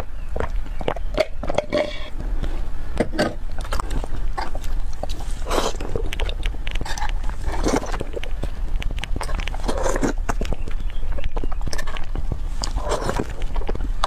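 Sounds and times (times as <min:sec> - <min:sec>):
slurps: 0:01.7 - 0:14.0
chewing mouth smacks: 0:03.6 - 0:13.9.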